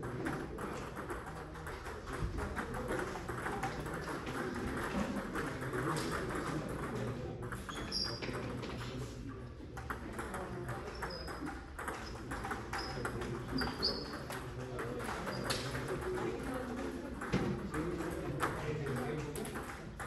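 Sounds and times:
sports hall murmur: 0:00.0 - 0:20.0
table tennis ball clicking: 0:09.8 - 0:20.0.

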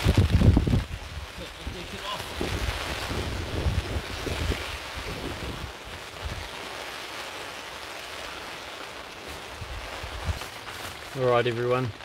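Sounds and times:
wind gusting on microphone: 0:00.0 - 0:06.7, 0:09.4 - 0:10.5
heavy rain: 0:00.0 - 0:12.0.

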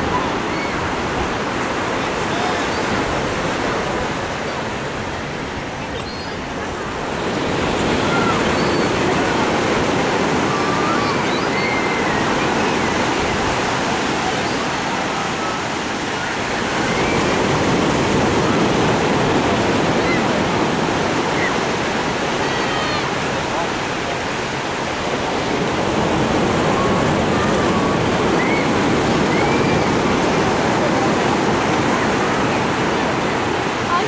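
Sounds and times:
ocean surf breaking on beach: 0:00.0 - 0:34.0
distant voices and shouts: 0:07.6 - 0:17.8, 0:21.2 - 0:23.8.

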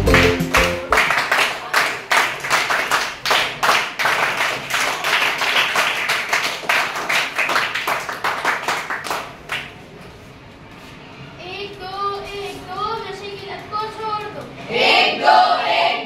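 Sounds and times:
children clapping in rhythm: 0:00.0 - 0:09.8.

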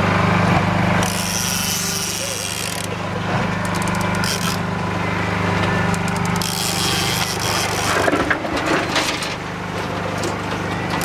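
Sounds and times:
boat motor running: 0:00.0 - 0:11.0
fishing reel ratcheting: 0:01.0 - 0:02.9, 0:03.6 - 0:04.6, 0:05.9 - 0:08.0.

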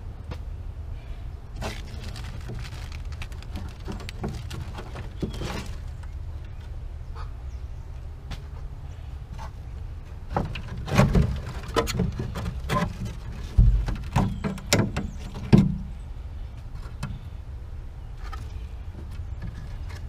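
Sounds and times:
knocks and clatters: 0:10.3 - 0:15.8.

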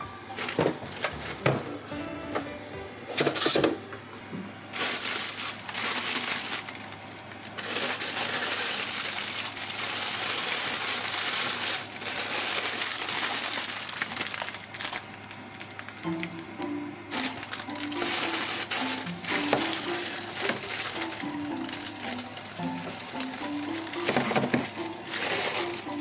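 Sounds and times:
plastic bags crinkling: 0:00.4 - 0:01.4, 0:04.8 - 0:16.4, 0:17.1 - 0:26.0.

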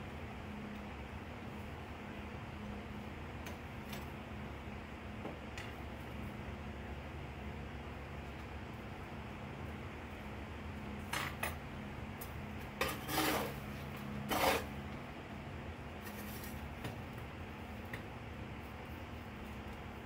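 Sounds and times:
metal tool scraping coal: 0:12.7 - 0:14.8.

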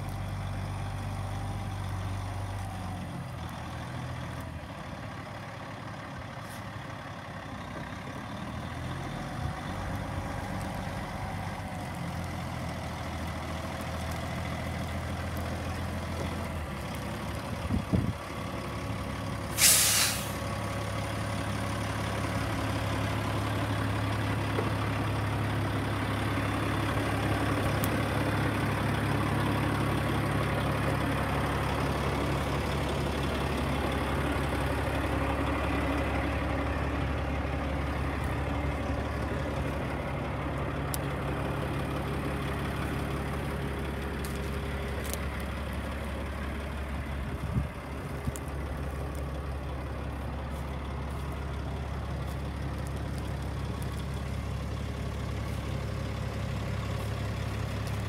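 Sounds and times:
diesel truck engine idling: 0:00.0 - 0:58.0
air brake hiss: 0:19.5 - 0:20.5.

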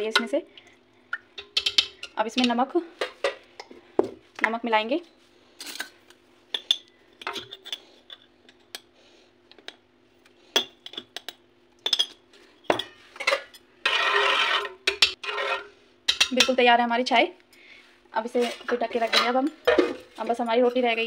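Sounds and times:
spoon scraping in pot: 0:12.8 - 0:15.8, 0:18.4 - 0:20.2.

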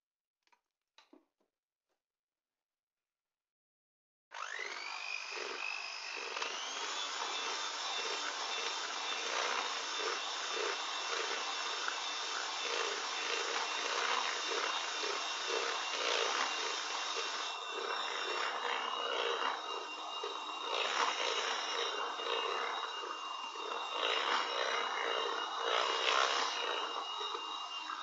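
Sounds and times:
electric hand mixer motor whine: 0:04.3 - 0:28.0
beaters churning thick batter: 0:06.2 - 0:28.0.

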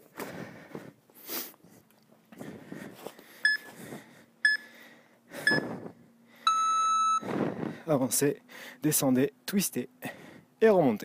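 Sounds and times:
timer countdown beeps: 0:03.4 - 0:03.7, 0:04.4 - 0:04.7, 0:05.4 - 0:05.7, 0:06.5 - 0:07.2.

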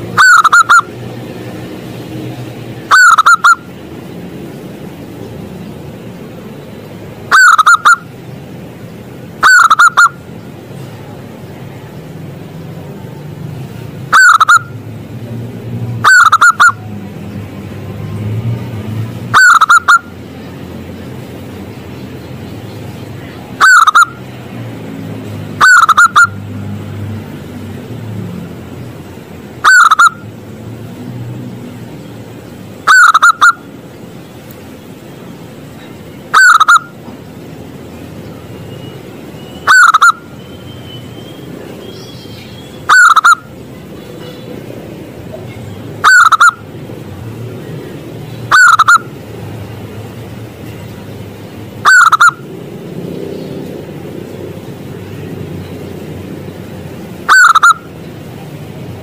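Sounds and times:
dove cooing: 0:00.2 - 0:00.8, 0:02.9 - 0:03.6, 0:07.3 - 0:08.0, 0:16.0 - 0:16.8, 0:23.6 - 0:24.1, 0:25.6 - 0:26.3, 0:32.9 - 0:33.6, 0:36.3 - 0:36.9, 0:42.9 - 0:43.4, 0:46.0 - 0:46.6, 0:48.5 - 0:49.0, 0:51.8 - 0:52.4, 0:57.3 - 0:57.8.

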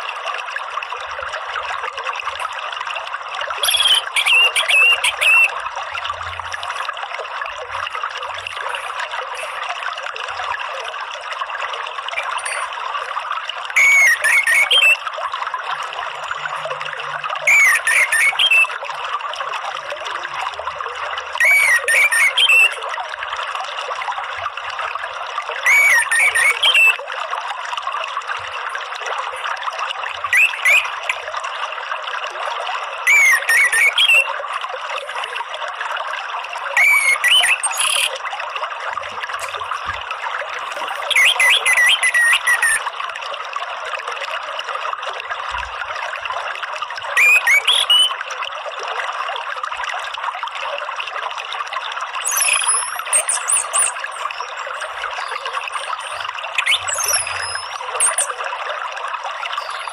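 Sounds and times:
running water: 0:00.0 - 0:59.9
thrush whistled song: 0:03.6 - 0:05.6, 0:12.2 - 0:12.7, 0:13.7 - 0:15.1, 0:17.4 - 0:18.8, 0:21.4 - 0:22.8, 0:25.6 - 0:27.0, 0:30.3 - 0:31.2, 0:33.0 - 0:34.4, 0:36.7 - 0:38.2, 0:40.5 - 0:42.9, 0:47.1 - 0:48.2, 0:52.2 - 0:58.5, 0:59.5 - 0:59.9.

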